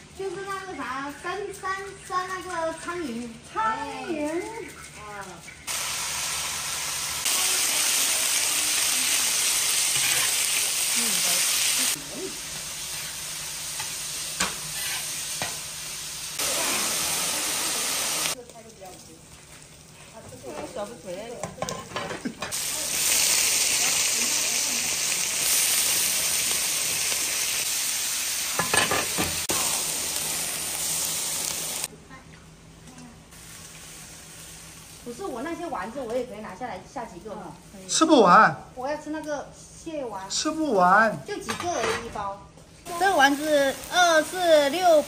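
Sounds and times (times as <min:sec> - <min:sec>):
meat sizzling in hot oil: 0:04.8 - 0:31.9, 0:33.3 - 0:39.2, 0:42.8 - 0:45.0
spatula scraping wok: 0:07.2 - 0:18.4, 0:28.5 - 0:29.9.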